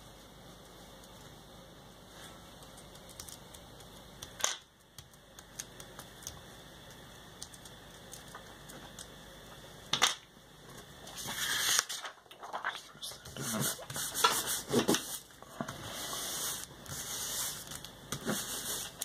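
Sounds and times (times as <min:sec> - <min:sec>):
paper rustling: 0:11.2 - 0:15.3.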